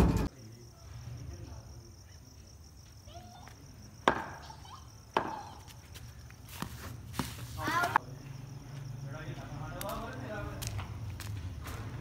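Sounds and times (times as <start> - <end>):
cricket bat hitting ball: 4.0 - 4.5, 5.2 - 5.4.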